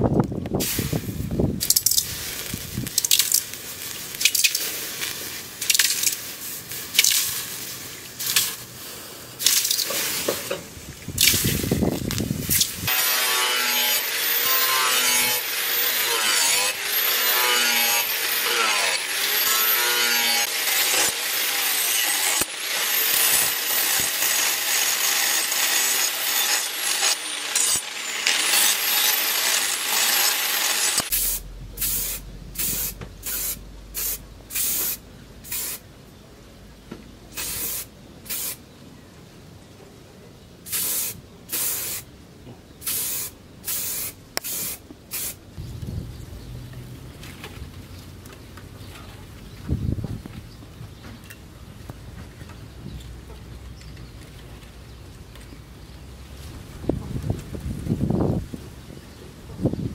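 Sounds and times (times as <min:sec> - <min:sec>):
angle grinder grinding steel: 0:12.5 - 0:34.8
aerosol spray can hissing: 0:31.1 - 0:35.8, 0:37.4 - 0:38.6, 0:40.7 - 0:42.0, 0:42.9 - 0:45.4.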